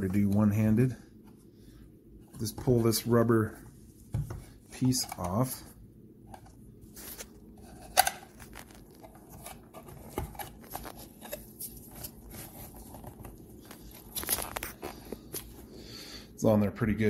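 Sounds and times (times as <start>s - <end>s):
plastic handling clicks and rubs: 4.1s - 5.6s, 6.3s - 15.6s.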